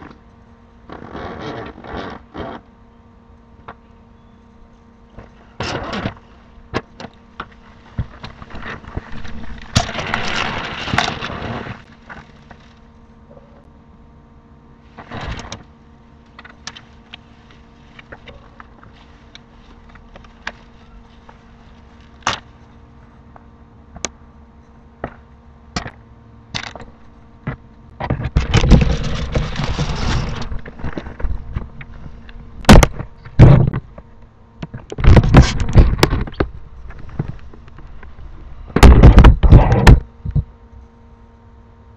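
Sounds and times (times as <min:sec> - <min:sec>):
steady electrical hum: 0:00.0 - 0:41.9
rough scraping rumble: 0:07.4 - 0:12.9, 0:28.0 - 0:33.8.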